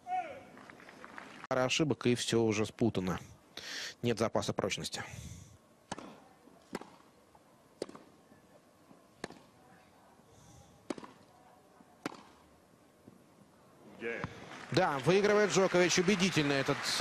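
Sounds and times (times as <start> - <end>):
tennis racket striking ball: 5.9 - 7.1, 7.8 - 8.2, 9.2 - 9.6, 10.8 - 11.2, 12.0 - 12.5.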